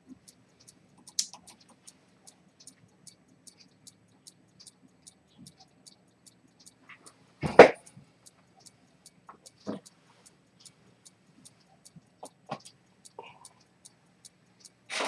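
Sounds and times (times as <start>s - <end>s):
pocket watch ticking: 0.0s - 15.0s.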